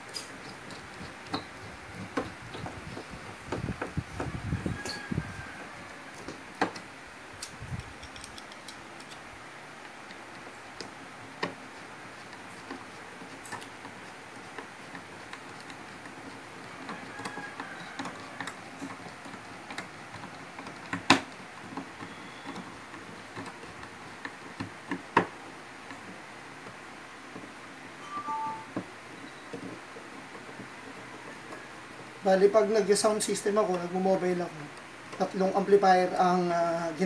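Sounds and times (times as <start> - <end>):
screwdriver clicks and taps: 7.4 - 9.2.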